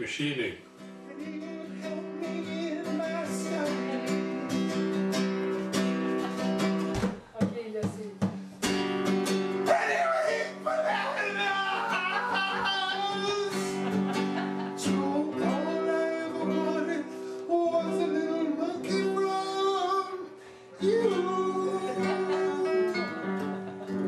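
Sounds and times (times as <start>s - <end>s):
acoustic guitar: 0.0s - 24.0s
man singing: 1.0s - 4.4s, 9.7s - 14.1s, 14.8s - 23.4s.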